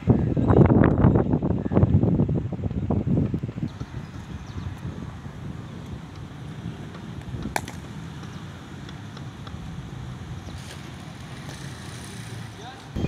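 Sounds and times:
wind noise on microphone: 0.0 - 13.0
cricket bat hitting ball: 7.4 - 7.9.

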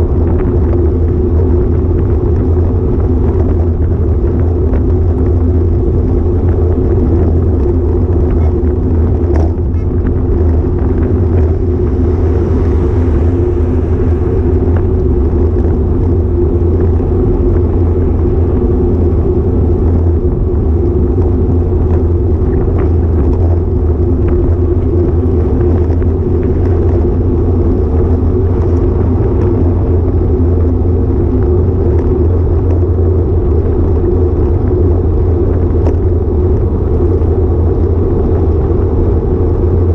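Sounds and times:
road vibration rumble: 0.0 - 39.9
wind buffeting: 0.0 - 39.9.

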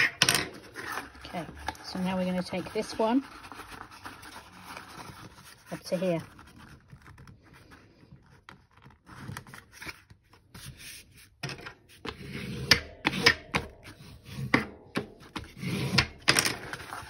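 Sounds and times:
paper rustling and rubbing: 0.6 - 12.1, 16.6 - 17.0.

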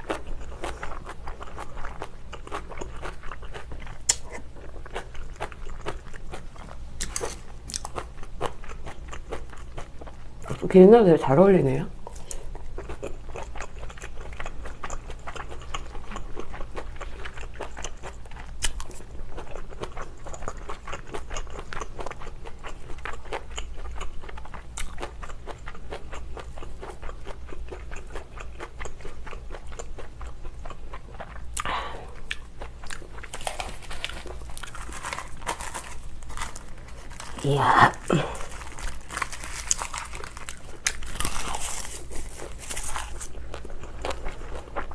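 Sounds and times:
close chewing and biting: 0.0 - 10.6, 12.0 - 44.9
dried seaweed crinkling: 33.2 - 44.2.

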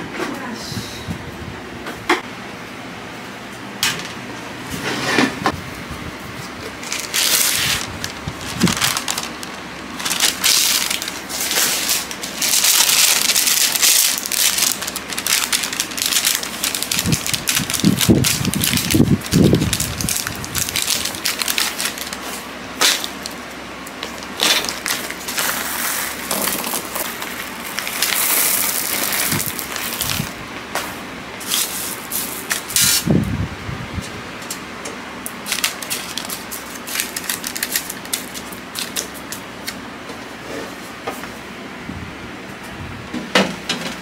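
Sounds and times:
baking paper crinkling: 6.5 - 33.1, 35.3 - 39.8.

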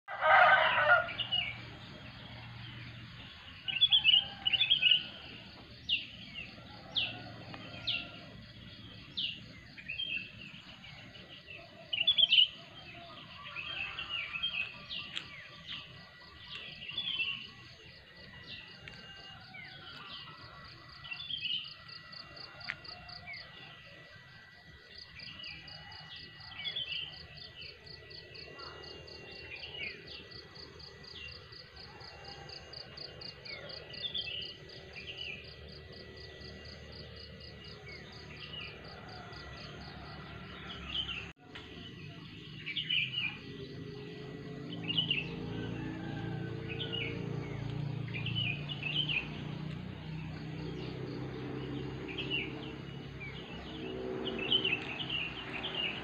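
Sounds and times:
birds chirping and calling: 0.2 - 21.9, 37.7 - 56.0.

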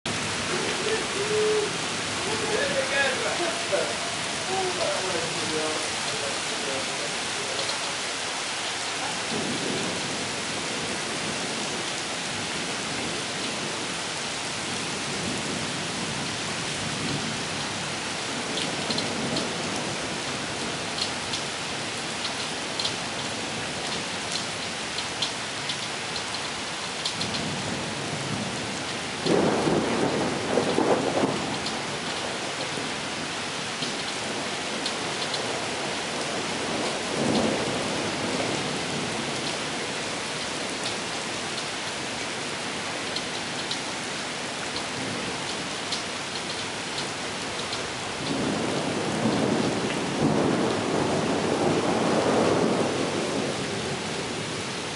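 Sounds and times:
heavy rain on pavement: 0.0 - 54.9
thunder rumbling: 9.2 - 14.0, 27.2 - 40.0, 48.1 - 54.7.

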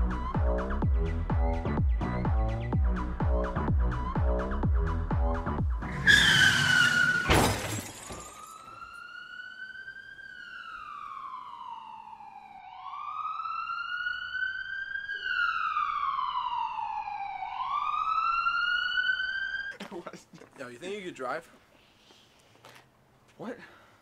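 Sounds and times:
tyre screech: 5.9 - 7.5
loud crash with breaking: 6.3 - 8.4
emergency siren wailing: 8.2 - 19.8.

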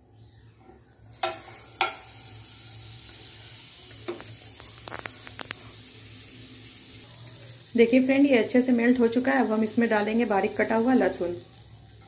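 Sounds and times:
butter sizzling in a frying pan: 0.8 - 12.0
small pops and crackles: 3.9 - 5.7.

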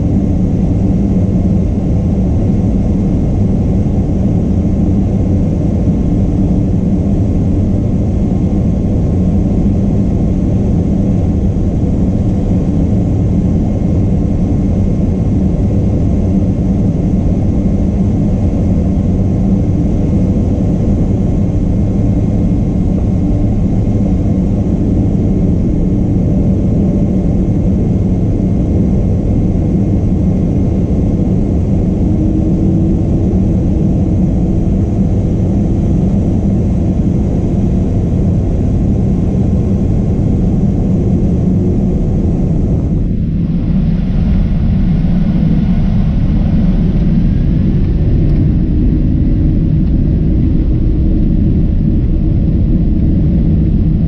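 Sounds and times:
aircraft engines rumbling: 0.0 - 54.0
faint steady whine: 0.0 - 54.0.

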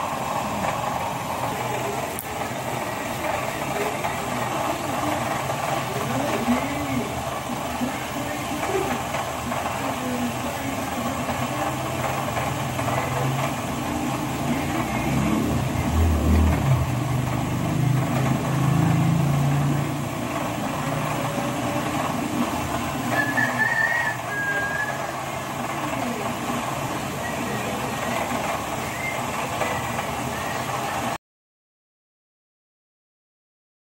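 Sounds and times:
engine humming: 0.0 - 31.2.

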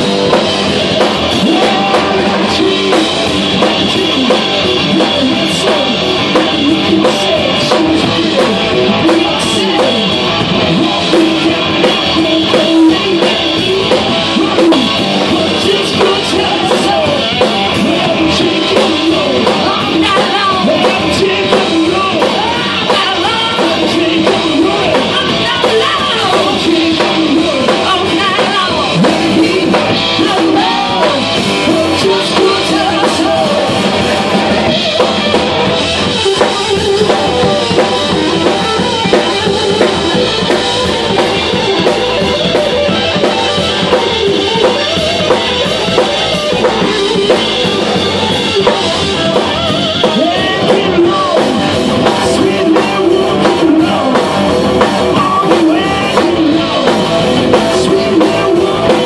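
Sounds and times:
live rock band playing: 0.0 - 59.0
woman singing: 10.7 - 34.0.

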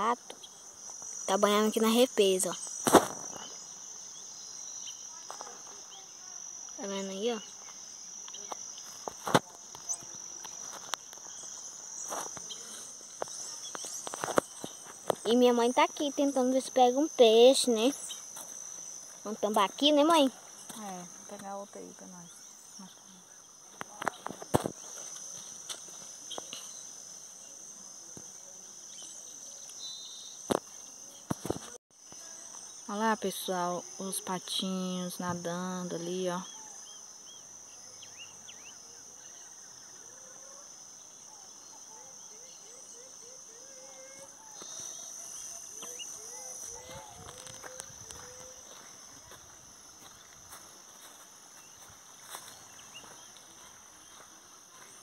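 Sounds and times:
insects chirping: 0.0 - 55.0
sharp knock: 2.8 - 3.4.

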